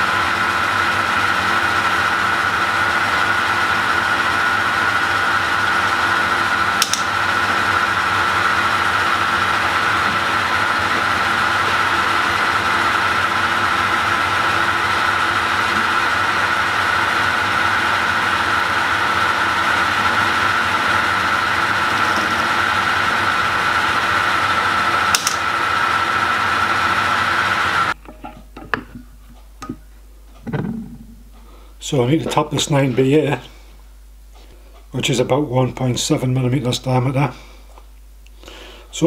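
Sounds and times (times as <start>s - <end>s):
lathe whirring with high whine: 0.0s - 28.0s
sharp click: 6.8s - 7.1s, 25.1s - 25.4s.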